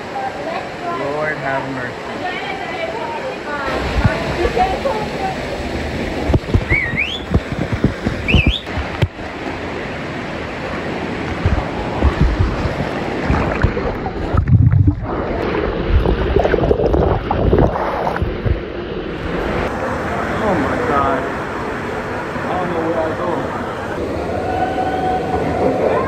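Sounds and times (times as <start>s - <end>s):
water rushing through cave passage: 0.0s - 26.0s
knocks and splashes: 3.7s - 4.7s, 6.1s - 9.7s, 11.1s - 19.7s
low rumble: 11.2s - 19.7s.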